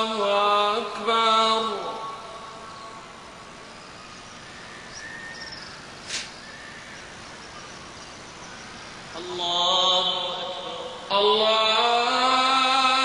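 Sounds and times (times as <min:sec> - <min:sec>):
man chanting: 0:00.0 - 0:02.5, 0:09.2 - 0:13.0
open-air hush: 0:00.0 - 0:12.8
faint high chirps: 0:03.6 - 0:09.0
short sharp noise: 0:06.0 - 0:06.4.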